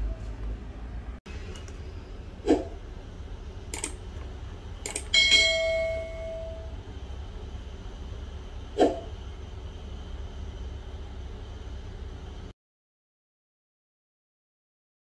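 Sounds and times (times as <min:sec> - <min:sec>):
bright bell ding: 0:05.1 - 0:06.7.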